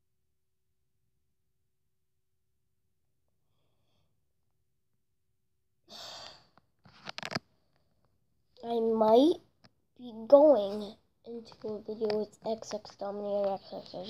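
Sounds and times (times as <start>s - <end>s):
boy breathing out hard: 5.9s - 6.5s.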